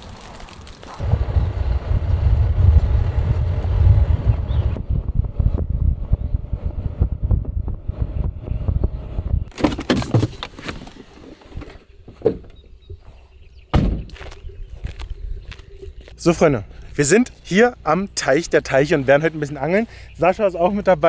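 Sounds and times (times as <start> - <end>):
car rumbling and rattling on dirt: 1.0 - 12.6
car door shutting thunk: 13.7 - 14.1.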